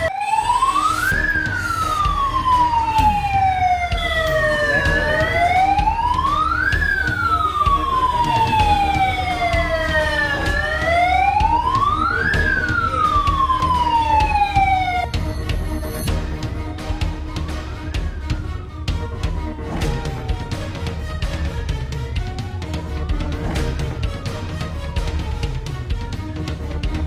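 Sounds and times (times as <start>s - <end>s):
security alarm siren wailing: 0.0s - 26.0s.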